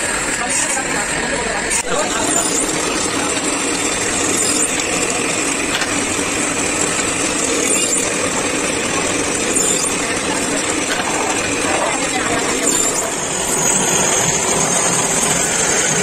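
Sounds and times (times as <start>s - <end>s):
drill press running: 0.0s - 16.0s.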